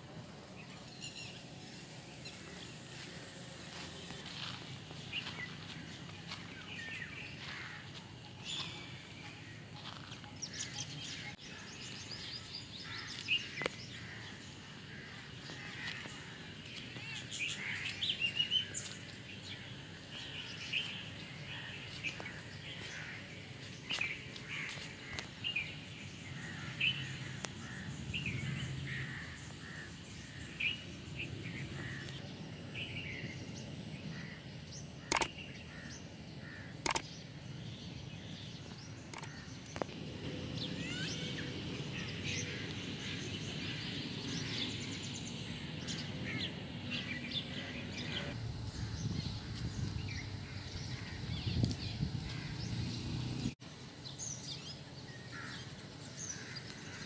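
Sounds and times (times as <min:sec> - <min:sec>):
birds chirping and calling: 0:34.0 - 0:38.0, 0:38.6 - 0:39.9, 0:40.6 - 0:53.5
sharp clicks: 0:35.1 - 0:35.4, 0:36.8 - 0:37.1, 0:39.1 - 0:39.9.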